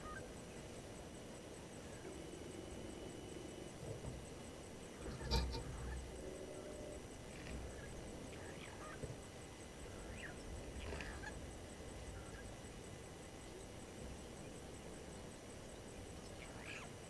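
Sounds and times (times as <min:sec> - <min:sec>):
bird calls: 0:05.0 - 0:06.6, 0:07.4 - 0:09.2, 0:09.8 - 0:11.4, 0:16.2 - 0:17.0.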